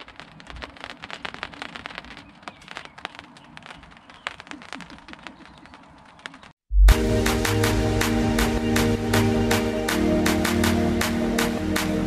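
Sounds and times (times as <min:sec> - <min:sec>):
raindrops pattering on a tarp: 0:00.0 - 0:06.6.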